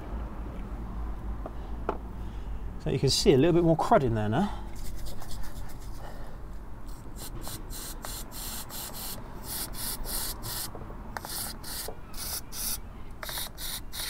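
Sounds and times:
brush scrubbing brake caliper: 6.9 - 14.0.

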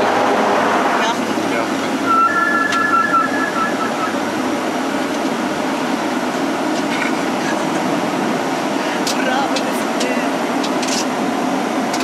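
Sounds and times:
propeller plane engine noise: 0.0 - 12.0
two-pitch beeping: 2.0 - 4.5.

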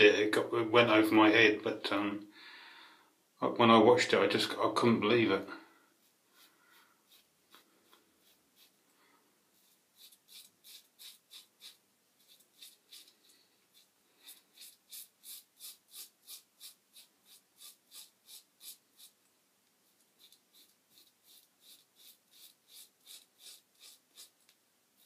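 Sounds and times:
razor scraping stubble: 6.3 - 8.8, 9.6 - 19.2, 19.8 - 25.0.

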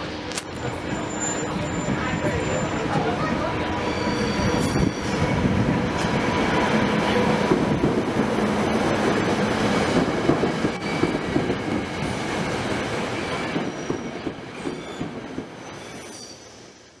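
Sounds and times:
train wheels on rails: 0.0 - 17.0
high-pitched wheel squeals: 1.0 - 2.9, 3.8 - 5.4.

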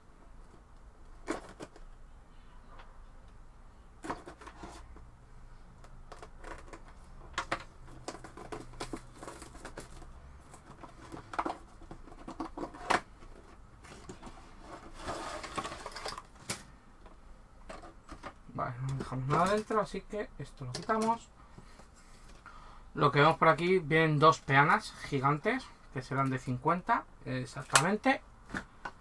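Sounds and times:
cardboard box rustling and scraping: 8.0 - 16.2.

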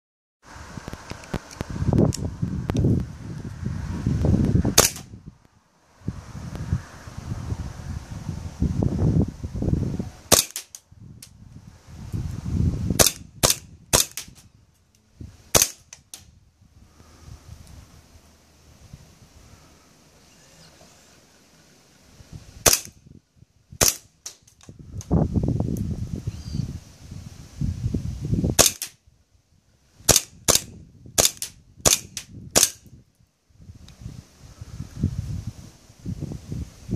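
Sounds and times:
airsoft pistol shots: 4.8 - 5.1, 10.3 - 10.8, 13.0 - 14.4, 15.5 - 15.9, 22.6 - 23.0, 23.8 - 24.4, 28.6 - 29.0, 30.1 - 32.8.

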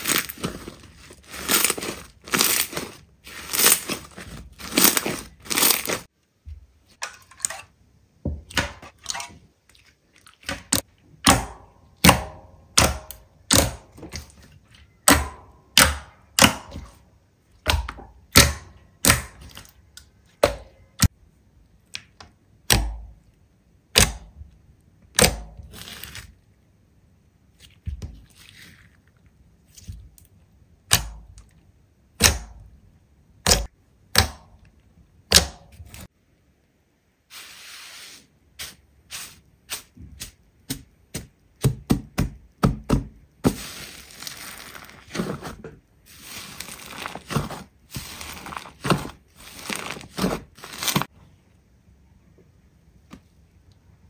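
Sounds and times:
soft slime crackle: 43.6 - 45.4, 46.1 - 51.1.

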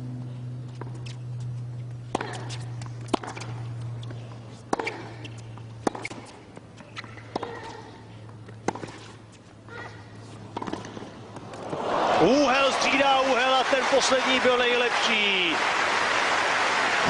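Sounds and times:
low steady hum: 0.0 - 12.5
tennis ball hit by racquets: 1.9 - 11.8.

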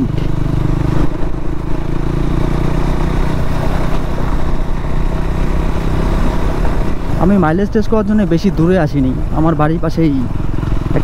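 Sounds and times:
motorcycle engine cruising: 0.0 - 11.0.

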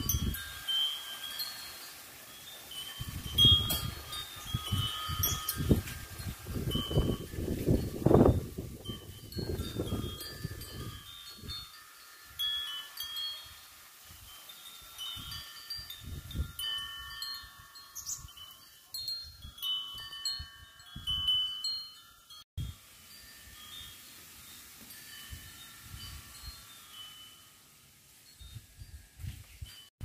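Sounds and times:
wind rumbling on microphone: 0.0 - 0.7, 2.9 - 13.3, 14.1 - 18.4, 19.0 - 21.8, 28.4 - 30.0
tube wind chime ringing: 0.0 - 29.9.

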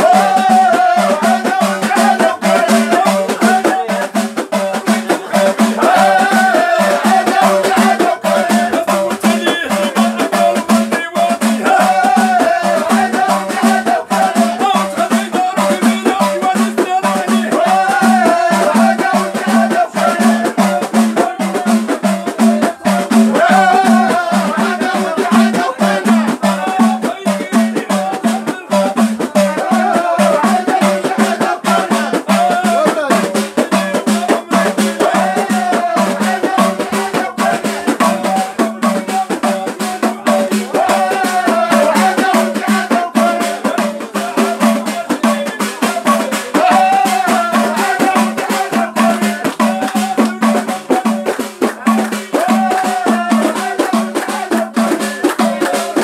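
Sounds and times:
hand drums and rattling percussion: 0.0 - 56.0
men chanting in chorus: 0.0 - 56.0.

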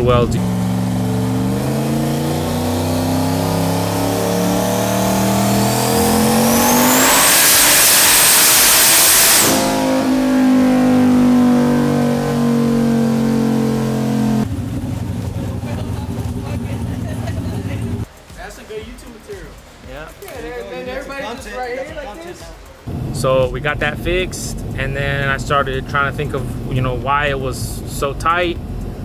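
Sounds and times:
loud rushing noise: 0.0 - 15.7
engine revving under load: 0.0 - 18.1, 22.7 - 29.0
turbo whine: 0.0 - 18.3.

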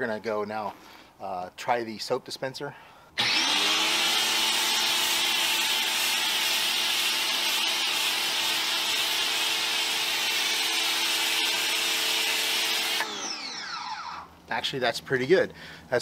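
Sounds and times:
pressure washer motor humming: 3.2 - 14.2.

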